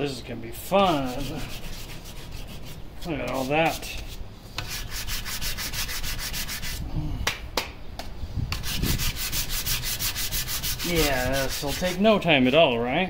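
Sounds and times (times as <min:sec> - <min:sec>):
sanding block rubbing on filler: 0:00.8 - 0:06.8, 0:08.5 - 0:12.6.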